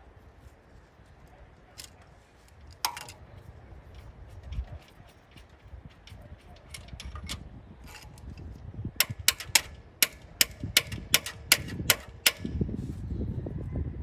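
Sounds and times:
hand tools clicking and tapping: 1.8s - 12.6s.

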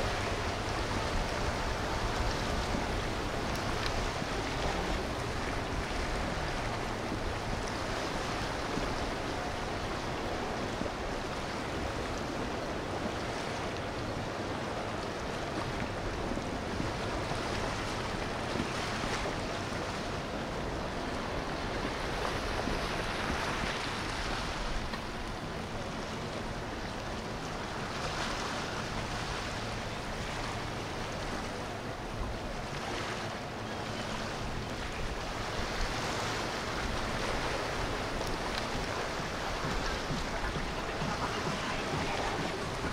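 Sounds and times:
boat engine noise: 0.0s - 42.9s
water rushing: 0.0s - 42.9s
wind on microphone: 0.0s - 42.9s.

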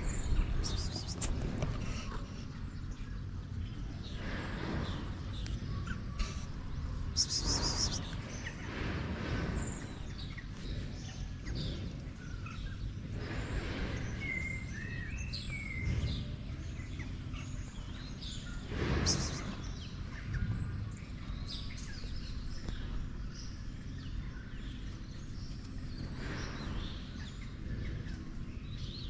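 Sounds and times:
high bird trill: 0.0s - 1.3s, 7.0s - 8.5s
outdoor background noise: 0.0s - 29.0s
small birds chirping: 0.0s - 29.0s.

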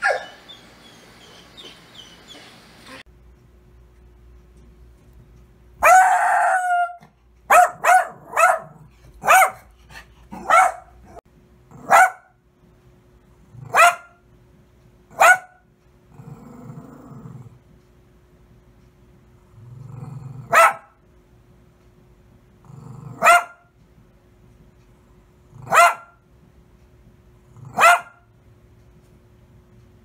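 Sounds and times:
small dog barking: 0.0s - 0.4s, 5.8s - 9.7s, 10.3s - 12.4s, 13.6s - 14.2s, 15.1s - 15.6s, 20.4s - 21.0s, 23.1s - 23.7s, 25.6s - 26.2s, 27.6s - 28.3s
dog growling: 16.1s - 17.6s, 19.4s - 20.5s, 22.6s - 23.3s.

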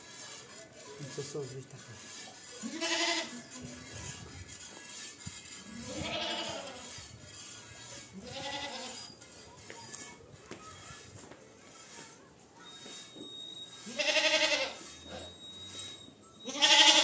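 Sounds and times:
goats bleating: 2.6s - 3.4s, 5.6s - 7.0s, 8.1s - 9.0s, 13.8s - 15.4s, 16.4s - 17.0s.

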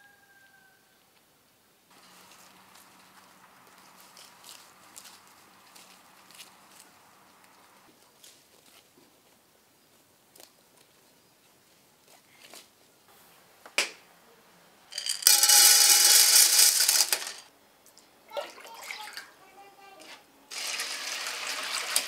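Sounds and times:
chickpeas rattling into basin: 14.9s - 17.5s, 20.5s - 22.0s.

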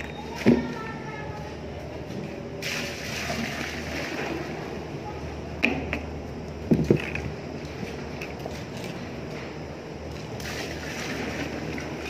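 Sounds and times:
paint pouring between buckets: 10.4s - 12.0s.

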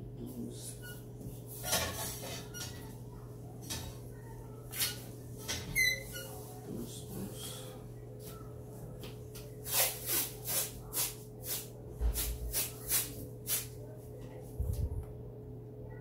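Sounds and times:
steady low hum: 6.1s - 16.0s.

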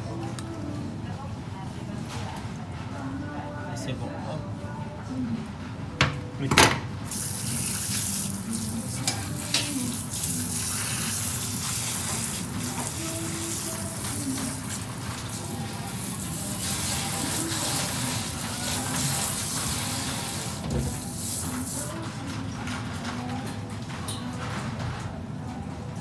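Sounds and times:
spray nozzle water hissing: 7.1s - 13.8s.

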